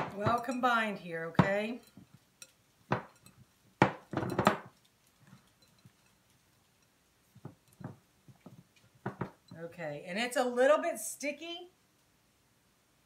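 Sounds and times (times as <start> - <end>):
glass bowl knocking on wood: 2.9 - 4.7, 7.4 - 9.6.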